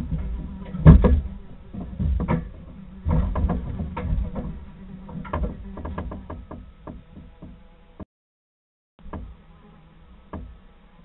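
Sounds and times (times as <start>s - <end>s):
low rumble: 0.0s - 7.1s
knocks and scuffs on wood: 0.0s - 7.6s.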